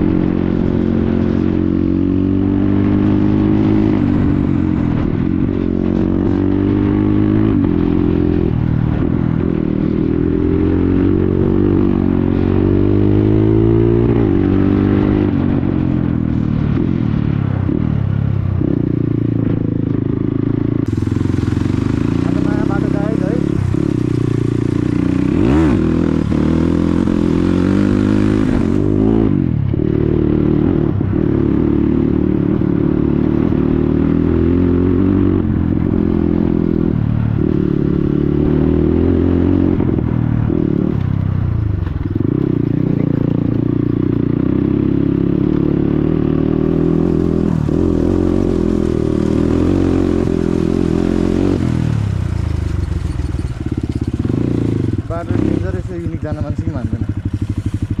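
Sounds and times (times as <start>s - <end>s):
dirt bike engine revving: 19.9s - 41.0s, 42.0s - 58.0s.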